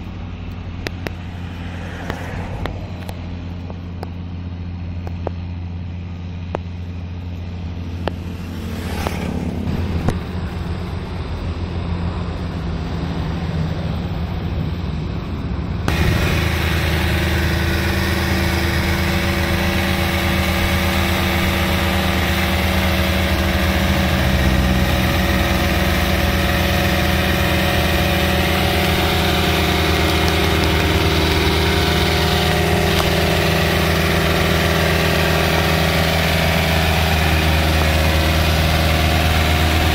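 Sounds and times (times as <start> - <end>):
tractor diesel engine running: 0.0 - 39.9
tiller churning mud: 15.9 - 39.9.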